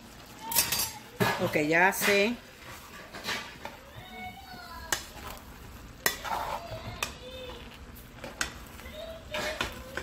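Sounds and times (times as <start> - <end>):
metal spoon scraping rice: 0.6 - 3.8, 4.9 - 8.6, 9.2 - 10.0.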